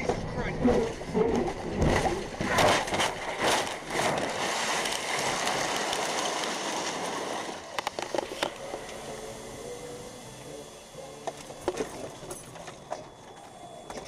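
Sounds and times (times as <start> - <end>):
heavy impacts and crunching: 1.5 - 8.6
falling debris and broken glass: 2.4 - 8.1.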